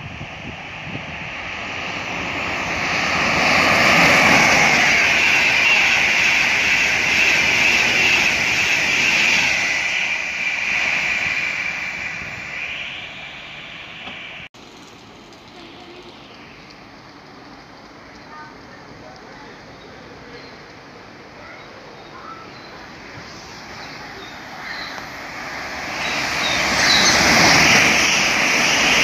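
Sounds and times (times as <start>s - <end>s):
train rushing past: 0.0s - 14.5s, 15.5s - 29.0s.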